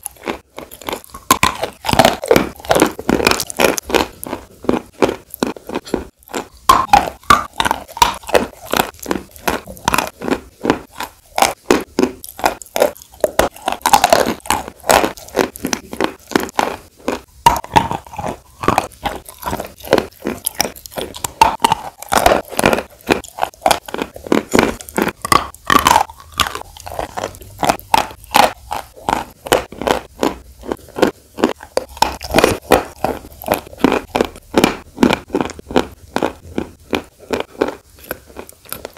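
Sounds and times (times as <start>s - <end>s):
crunching and chewing: 0.0s - 38.9s
wet mouth sounds: 0.0s - 38.9s.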